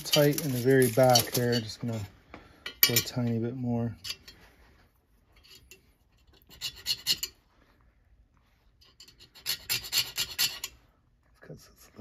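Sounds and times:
hand file rasping on metal: 6.3 - 7.4, 8.8 - 10.8.

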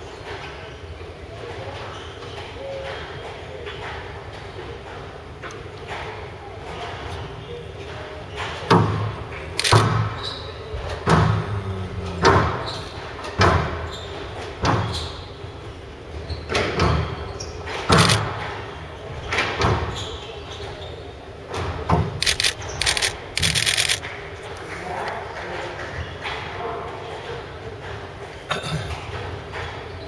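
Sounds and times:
shoe squeaks on court floor: 10.0 - 10.6, 13.8 - 15.4, 19.8 - 21.1
squash ball hitting racket and walls: 16.5 - 20.0.

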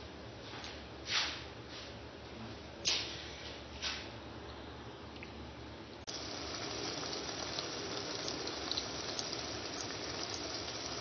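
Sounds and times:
gravy bubbling and sizzling: 6.1 - 11.0.

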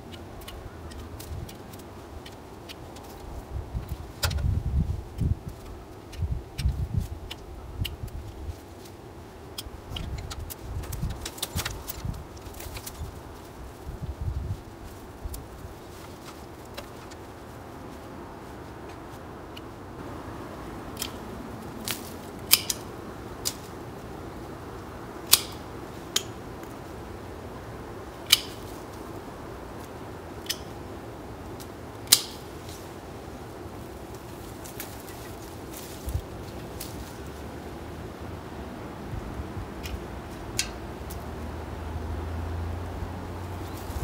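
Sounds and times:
steady background noise: 0.0 - 44.0
pruning shears snipping stems: 5.1 - 13.2, 20.9 - 23.8, 25.2 - 26.8, 28.3 - 29.0, 31.5 - 32.9, 39.8 - 41.3.

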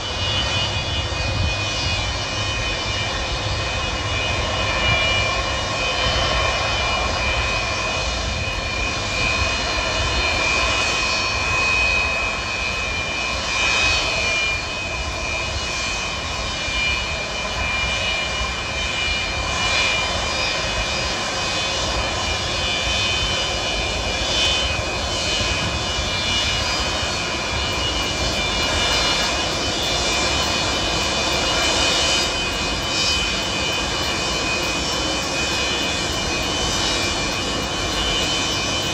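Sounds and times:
high steady engine whine: 0.0 - 38.9
jet engine noise: 0.0 - 38.9.

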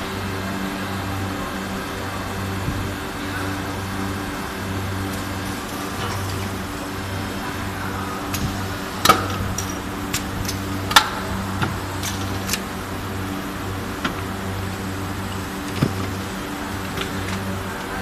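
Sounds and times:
machine low mechanical hum: 0.0 - 18.0
machine sharp clicks and clunks: 8.2 - 17.5.

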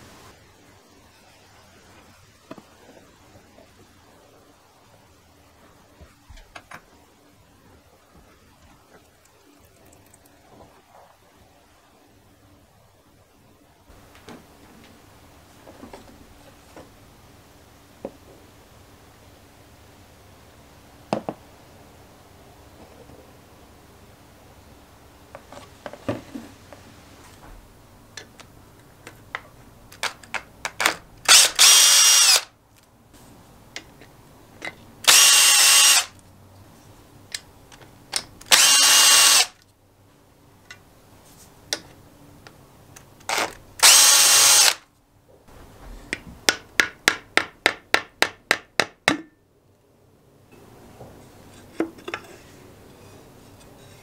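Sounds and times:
cordless drill spinning: 31.2 - 32.5, 35.1 - 36.2, 38.5 - 39.6, 43.3 - 44.8.

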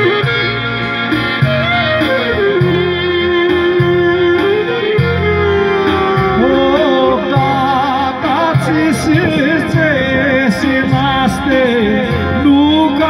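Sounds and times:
clarinets playing folk melody: 0.0 - 7.5.

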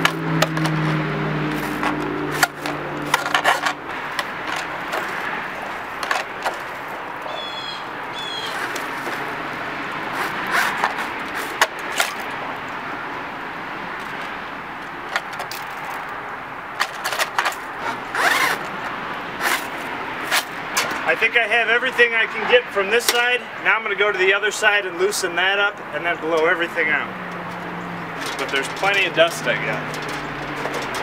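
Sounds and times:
cable brush scraping in vent pipe: 0.0 - 7.3, 8.2 - 12.4, 16.8 - 18.8, 19.4 - 21.2, 28.1 - 31.0.

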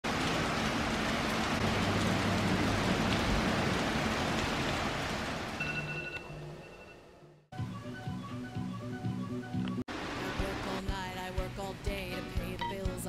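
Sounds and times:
steady rain: 0.0 - 6.2, 9.9 - 10.8.

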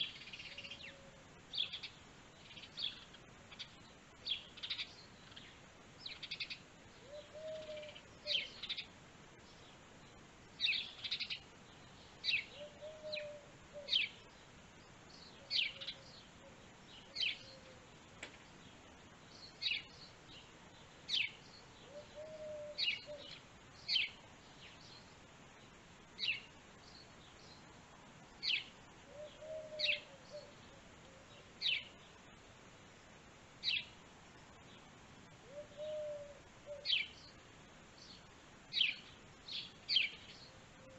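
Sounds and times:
lower bird call: 0.0 - 8.9, 10.6 - 14.3, 15.2 - 17.9, 21.1 - 25.0, 28.4 - 32.0, 35.4 - 37.4.

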